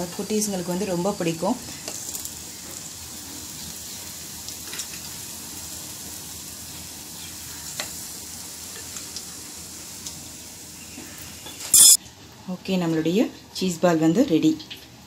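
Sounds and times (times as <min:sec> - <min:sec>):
oil sizzling: 0:00.0 - 0:12.0.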